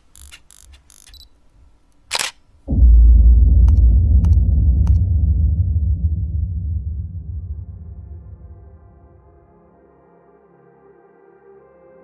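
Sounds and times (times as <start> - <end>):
camera shutter click: 2.1 - 2.4
deep boom with low rumble: 2.7 - 9.4.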